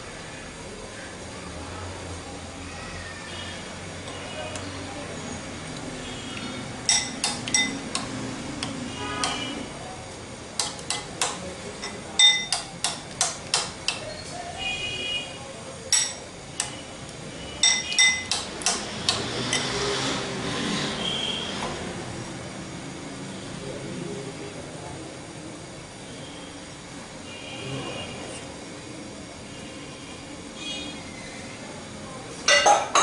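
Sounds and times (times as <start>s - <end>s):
metal spoon clinking glass bowl: 6.9s - 7.8s, 11.8s - 12.7s, 17.6s - 18.4s, 32.5s - 33.0s.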